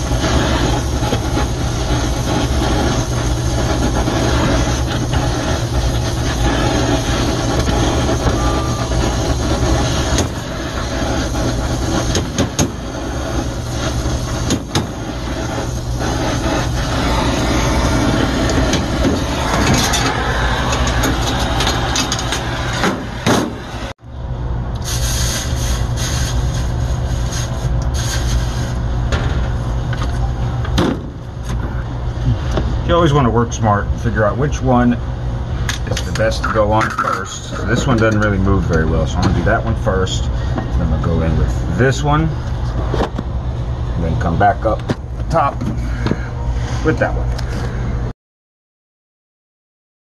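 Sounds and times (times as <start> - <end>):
torch flame rushing: 0.0 - 24.0, 24.7 - 33.2.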